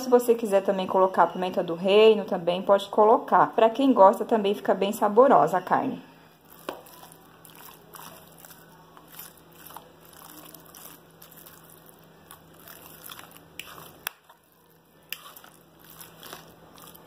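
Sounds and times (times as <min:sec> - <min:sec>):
wet squishing of meat: 0:06.4 - 0:17.0.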